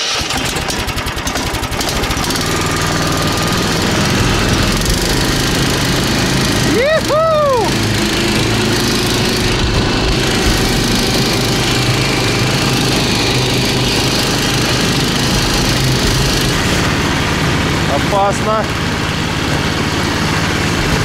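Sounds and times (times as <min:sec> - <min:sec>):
small engine running under load: 0:00.0 - 0:21.0
rising and falling tone: 0:02.8 - 0:19.1.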